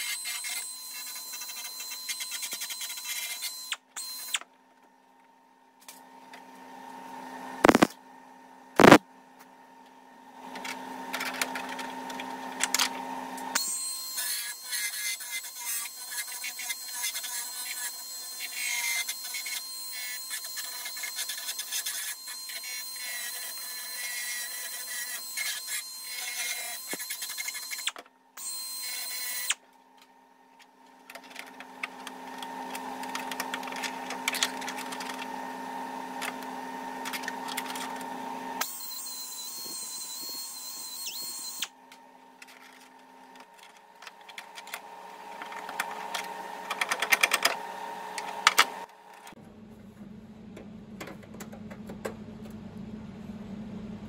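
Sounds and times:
power tool on sheet metal: 0:07.6 - 0:07.9, 0:08.8 - 0:09.0, 0:13.4 - 0:29.6, 0:32.0 - 0:41.8
steady hum: 0:08.8 - 0:09.0.

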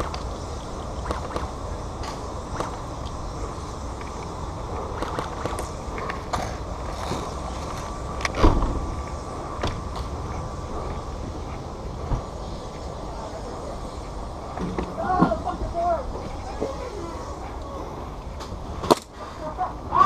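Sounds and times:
loud thump: 0:08.4 - 0:09.0.

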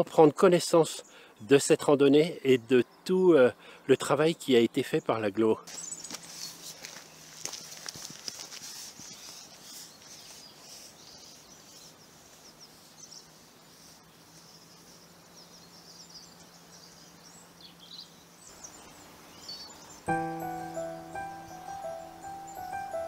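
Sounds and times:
small birds chirping: 0:04.8 - 0:23.0
footsteps on leafy path: 0:05.7 - 0:09.6.

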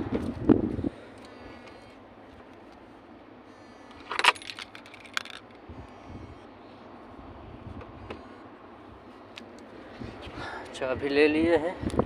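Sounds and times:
car keys jangling: 0:04.0 - 0:05.6.

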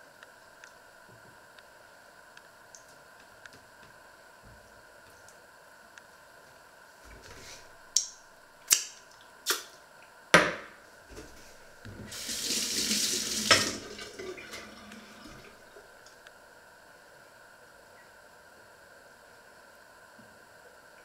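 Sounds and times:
tap running into steel sink: 0:11.9 - 0:14.3.

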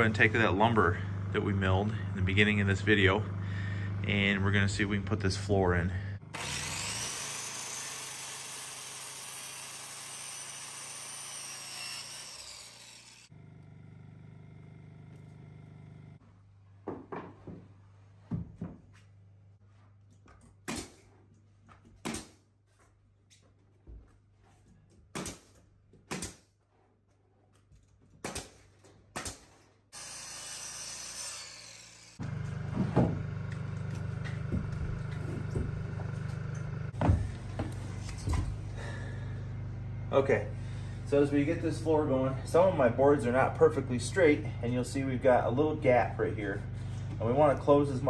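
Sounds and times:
circular saw cutting wood: 0:06.2 - 0:16.2, 0:29.9 - 0:39.2
pneumatic nailer firing: 0:06.3 - 0:13.3, 0:20.6 - 0:21.0, 0:22.0 - 0:22.4, 0:25.1 - 0:26.5, 0:28.2 - 0:33.4.

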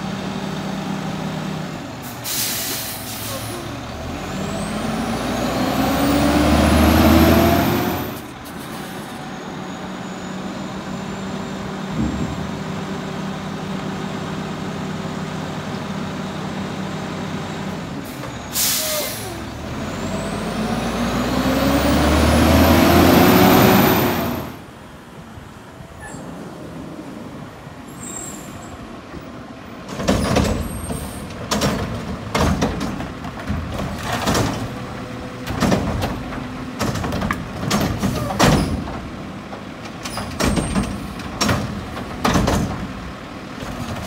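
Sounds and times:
diesel truck engine revving: 0:00.0 - 0:08.4, 0:09.2 - 0:24.7
air brakes hissing: 0:02.0 - 0:03.8, 0:08.4 - 0:10.4, 0:18.1 - 0:19.5, 0:27.8 - 0:28.8.

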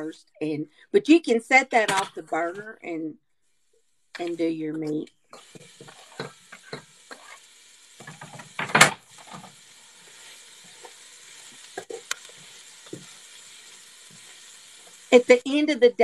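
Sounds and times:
vegetables sizzling in a pot: 0:03.4 - 0:16.0
spatula scraping a pot: 0:05.4 - 0:15.1.

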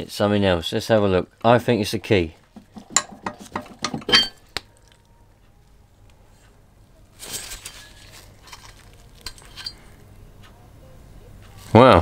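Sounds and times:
metallic scrape and rattle: 0:07.2 - 0:10.0
small metal clinks: 0:07.4 - 0:10.0.

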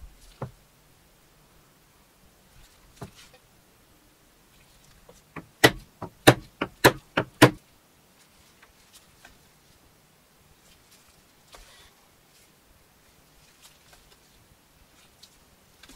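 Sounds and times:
mallet striking chisel on leather: 0:05.4 - 0:07.6.

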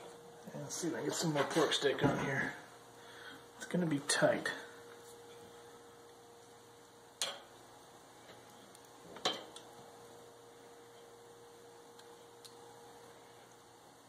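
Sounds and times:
faint steady hum: 0:00.0 - 0:14.0
metal tongs clicking on grill grate: 0:07.2 - 0:07.5.

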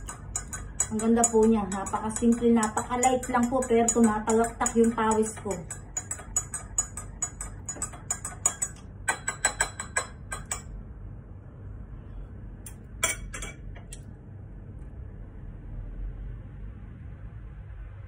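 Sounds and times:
spoon clinking against a glass: 0:00.0 - 0:10.7, 0:13.0 - 0:13.6.

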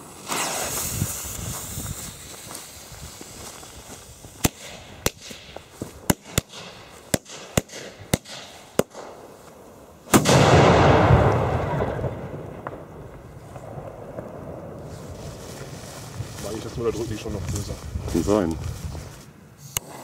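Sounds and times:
firecracker blast: 0:00.0 - 0:03.0, 0:10.1 - 0:16.2.

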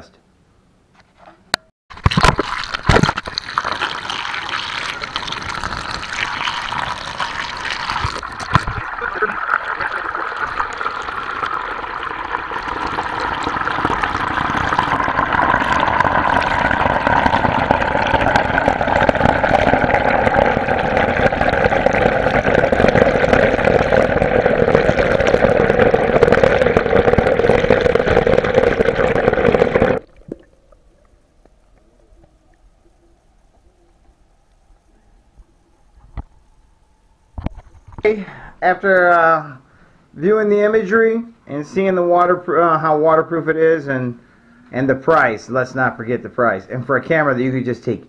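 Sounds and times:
water pouring: 0:01.9 - 0:31.1.

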